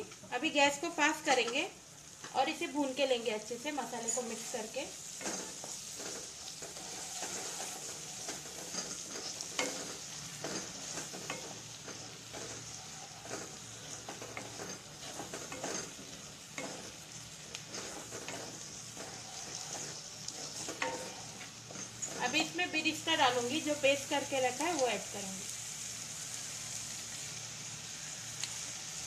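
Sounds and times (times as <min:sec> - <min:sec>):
paste sizzling in oil: 0:00.0 - 0:29.0
wooden spatula scraping pan: 0:04.0 - 0:24.2.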